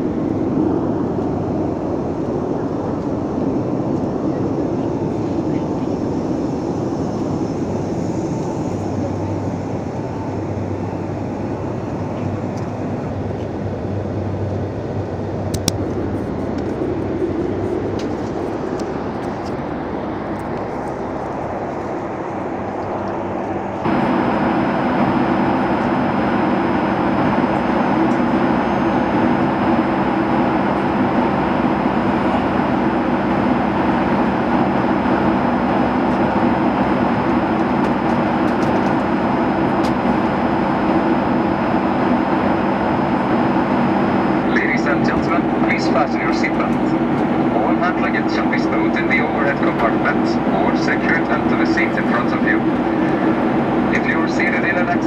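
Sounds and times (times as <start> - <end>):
airliner cabin engine noise: 0.0 - 55.0.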